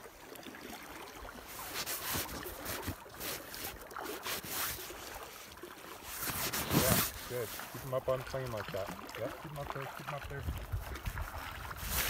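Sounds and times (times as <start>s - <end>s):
river water washing: 0.0s - 12.0s
clothing rubbing on microphone: 1.5s - 7.9s, 10.7s - 12.0s.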